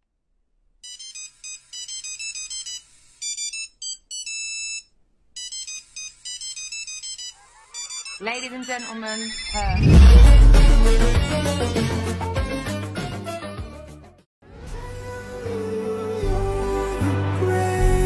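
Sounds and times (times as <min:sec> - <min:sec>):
electronic beeping melody: 0:05.4 - 0:11.3.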